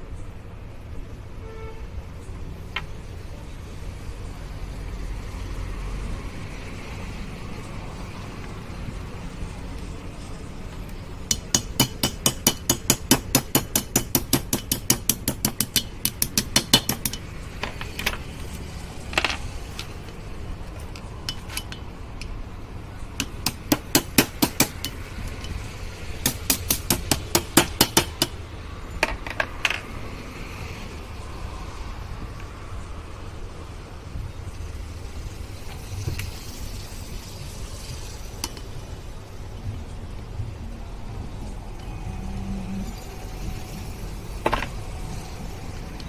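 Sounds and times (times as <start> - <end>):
rapid metallic tapping: 11.3 - 17.3, 23.2 - 25.6, 26.2 - 28.4.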